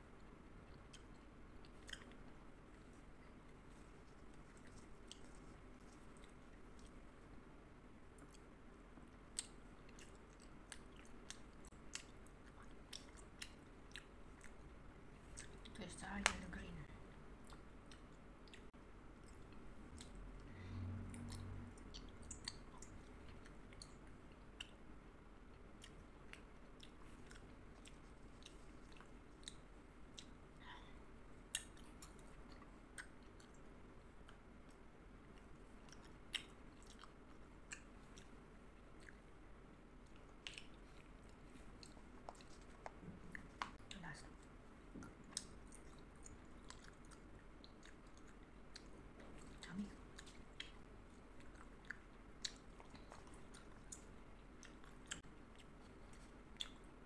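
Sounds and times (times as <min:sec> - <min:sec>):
chewing gummy candy: 0:00.2 - 0:07.0, 0:08.1 - 0:20.2, 0:21.1 - 0:24.8, 0:25.5 - 0:39.4, 0:40.0 - 0:57.0
wet mouth clicks and smacks: 0:21.2 - 0:24.8.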